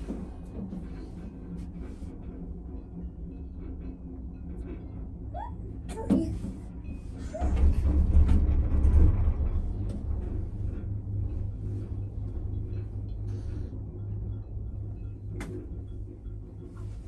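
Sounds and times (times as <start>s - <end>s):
gondola cabin rumble: 0.0s - 17.0s.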